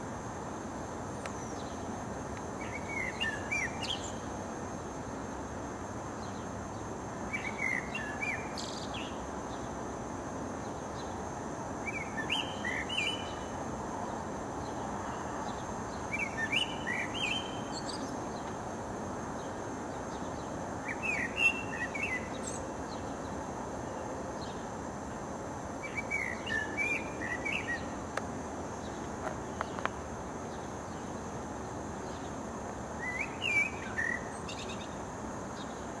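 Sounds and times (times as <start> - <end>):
low background noise: 0.0 - 36.0
blackbird singing: 2.6 - 4.3, 7.3 - 9.2, 11.8 - 13.5, 15.5 - 18.5, 20.1 - 23.2, 25.8 - 28.0, 33.0 - 35.0.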